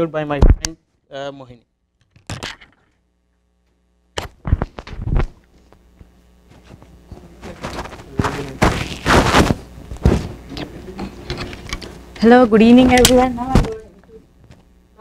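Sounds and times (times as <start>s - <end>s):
microphone handling knocks and rustling: 4.2s - 5.4s, 6.5s - 10.6s, 12.8s - 14.7s.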